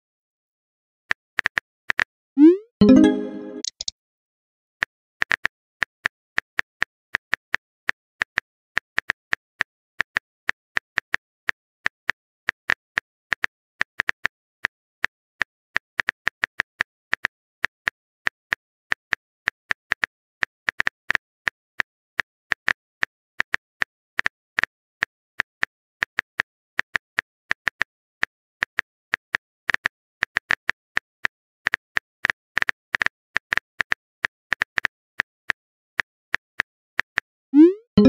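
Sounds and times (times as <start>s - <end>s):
phone keyboard typing clicks: 2.8s - 3.9s.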